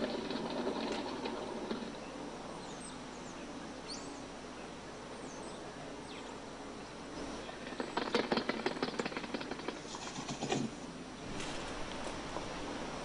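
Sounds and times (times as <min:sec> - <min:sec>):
faint high bird chirps: 0:02.0 - 0:08.0.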